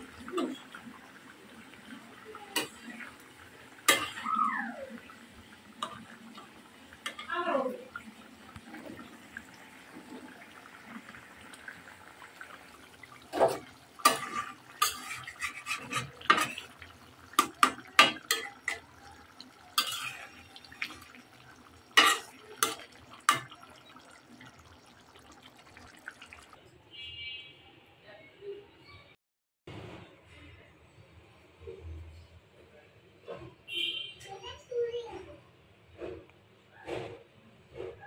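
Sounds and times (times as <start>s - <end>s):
metal spatula scraping pan: 13.3s - 18.9s, 19.7s - 23.5s.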